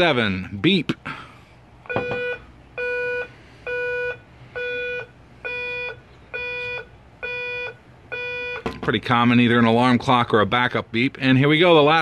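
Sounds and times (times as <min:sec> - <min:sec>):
electronic siren beeping: 0:01.9 - 0:08.7.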